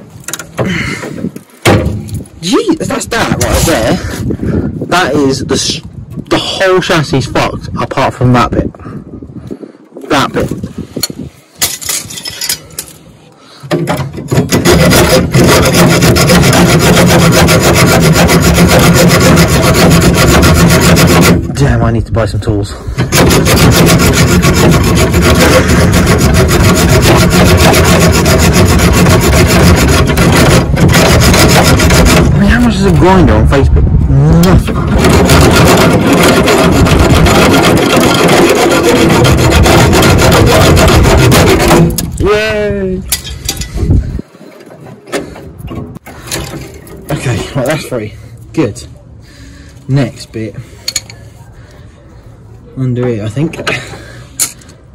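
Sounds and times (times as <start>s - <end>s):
hacksaw cutting steel: 14.0s - 21.6s, 22.9s - 32.8s, 34.6s - 42.3s.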